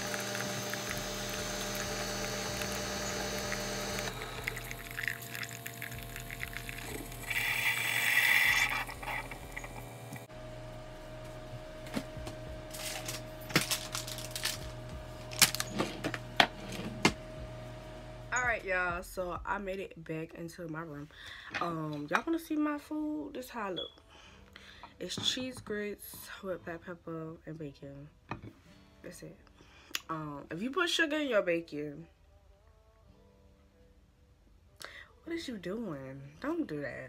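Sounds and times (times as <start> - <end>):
coffee pouring into mug: 0.0 - 9.9
coffee brewer pump humming: 0.0 - 19.0.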